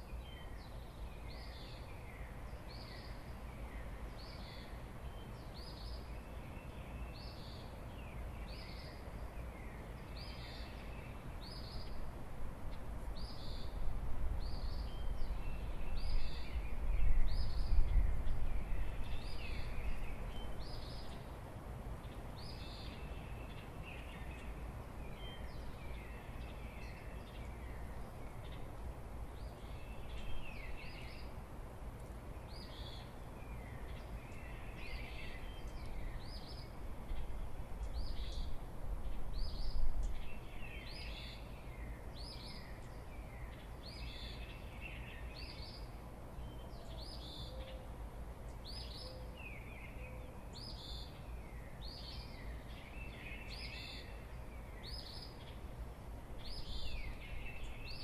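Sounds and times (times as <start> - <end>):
songbirds calling: 0.0 - 58.0
wind rumbling on microphone: 10.4 - 41.3, 56.2 - 58.0.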